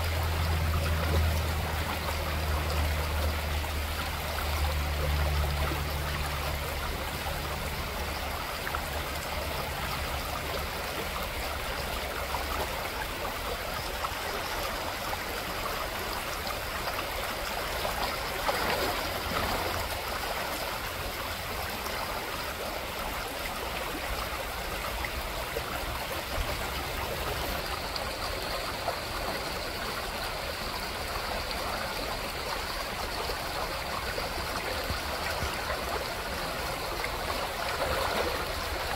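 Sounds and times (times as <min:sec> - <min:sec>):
creek water over gravel: 0:00.0 - 0:38.9.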